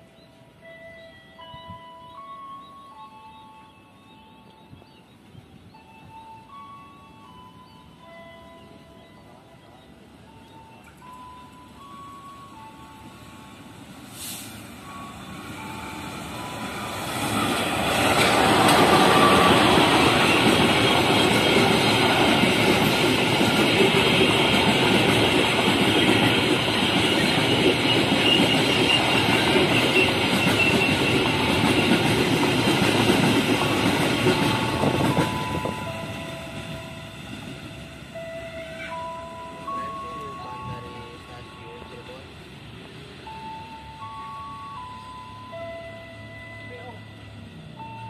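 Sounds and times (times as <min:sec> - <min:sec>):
locomotive and wagons passing: 0:00.0 - 0:48.0.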